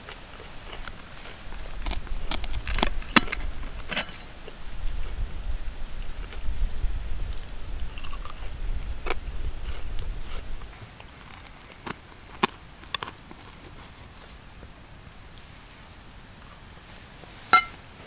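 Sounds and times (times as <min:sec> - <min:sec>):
knife scraping cast iron skillet: 0:17.5 - 0:17.8.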